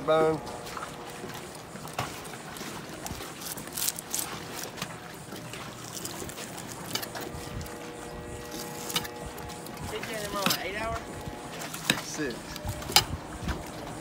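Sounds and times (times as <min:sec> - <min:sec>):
lapping water: 0:00.0 - 0:14.0
outdoor background noise: 0:00.0 - 0:14.0
knife slicing fish: 0:02.9 - 0:04.9.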